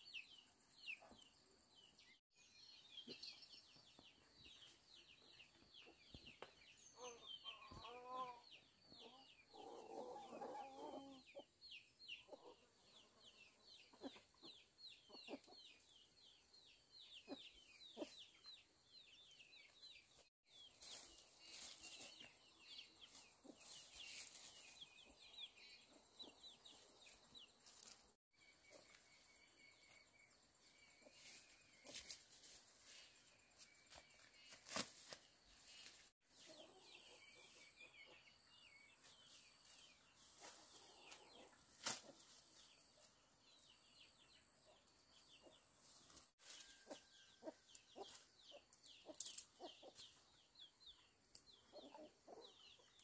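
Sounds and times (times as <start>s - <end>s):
chickens clucking: 5.5s - 16.0s, 17.2s - 18.5s, 46.8s - 53.0s.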